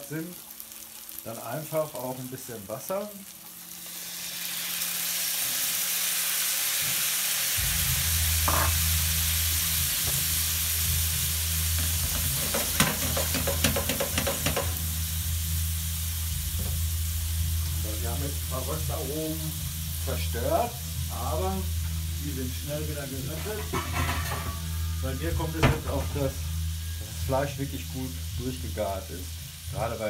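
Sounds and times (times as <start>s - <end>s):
water sizzling in hot pan: 0.0s - 30.0s
low steady hum: 7.6s - 13.4s, 14.4s - 30.0s.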